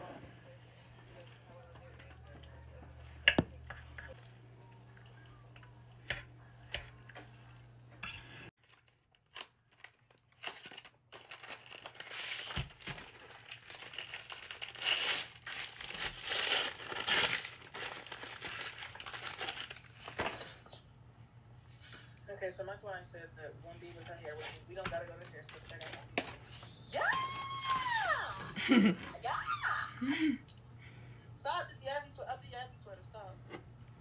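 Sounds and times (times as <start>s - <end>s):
paper wrapping crinkling: 8.6s - 20.6s, 23.9s - 28.3s.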